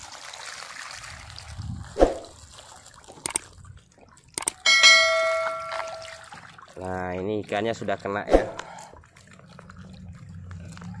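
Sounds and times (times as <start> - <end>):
water trickling and sloshing: 0.0 - 11.0
sharp clicks: 3.2 - 3.4, 4.4 - 4.6.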